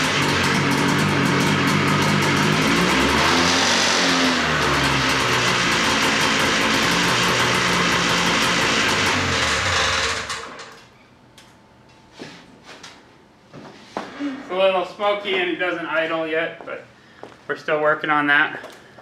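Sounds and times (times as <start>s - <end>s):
snowmobile engine running: 0.0s - 10.6s.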